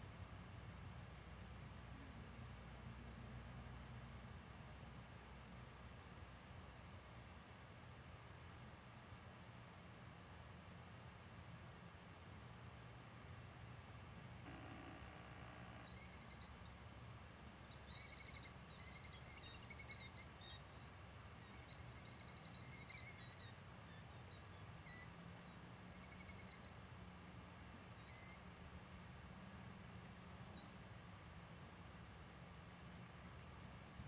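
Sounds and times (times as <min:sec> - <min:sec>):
low background rumble: 0:00.0 - 0:34.0
faint bird calls: 0:14.5 - 0:16.8, 0:17.6 - 0:26.8, 0:27.9 - 0:28.5, 0:30.5 - 0:30.8.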